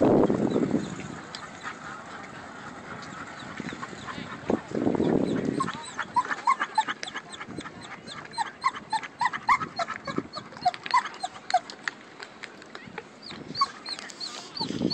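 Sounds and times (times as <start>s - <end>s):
dog whining and yelping: 8.1s - 11.7s, 13.3s - 14.9s.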